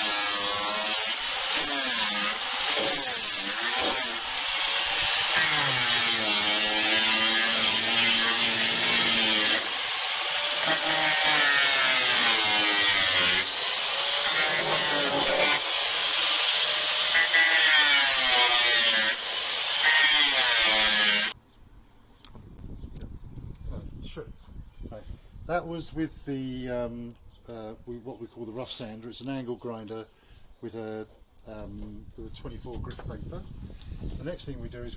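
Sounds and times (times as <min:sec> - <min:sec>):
angle grinder sanding wood: 0:00.0 - 0:21.4.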